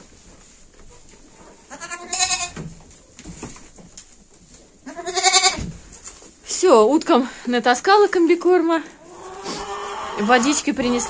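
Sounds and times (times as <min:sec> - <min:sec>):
goats bleating: 0:01.7 - 0:02.5, 0:04.8 - 0:05.6.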